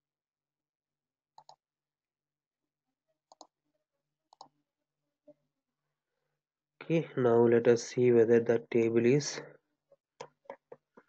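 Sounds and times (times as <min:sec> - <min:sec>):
keyboard and mouse clicks: 0:01.4 - 0:01.6, 0:03.3 - 0:03.5, 0:04.3 - 0:04.6.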